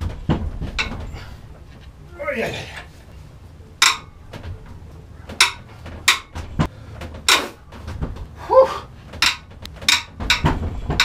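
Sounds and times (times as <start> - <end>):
wrench clanking on engine block: 0.8 - 1.2, 3.8 - 4.2, 5.3 - 6.4, 9.1 - 11.0.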